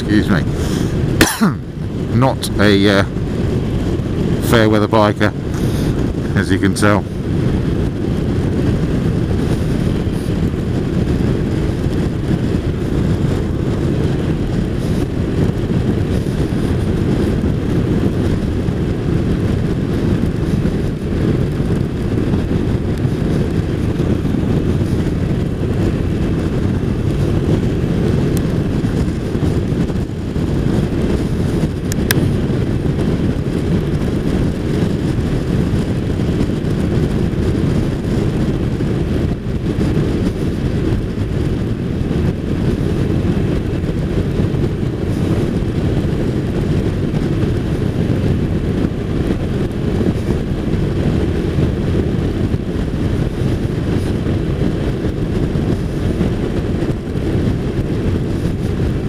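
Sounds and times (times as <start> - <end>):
motorcycle engine and road noise: 0.0 - 59.0
wind rushing over microphone: 0.0 - 59.0.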